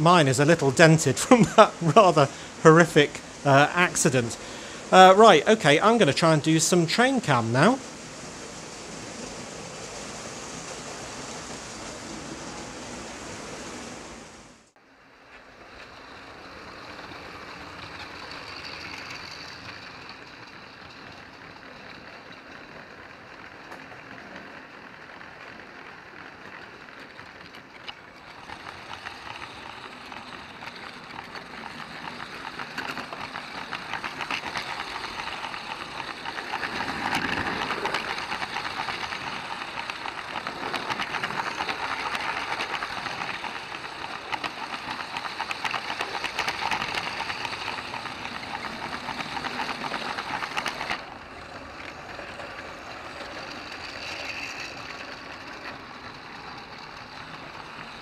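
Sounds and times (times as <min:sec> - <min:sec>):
wheels rattling and clicking: 0:00.0 - 0:58.0
toy train motor whirring: 0:15.8 - 0:58.0.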